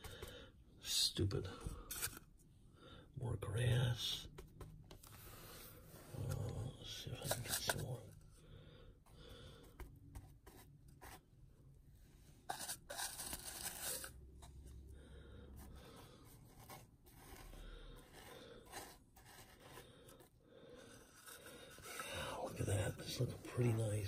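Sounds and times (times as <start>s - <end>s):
faint scraping and rustling: 3.6s - 8.3s.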